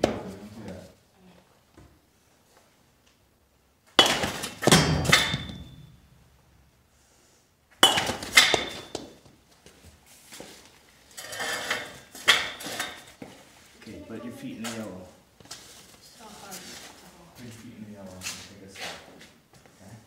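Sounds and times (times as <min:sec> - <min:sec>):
ball clattering against net and balls: 0:03.9 - 0:06.0, 0:07.8 - 0:09.4, 0:11.1 - 0:13.4
baseball bat cracking ball: 0:04.0 - 0:05.9, 0:07.8 - 0:09.1.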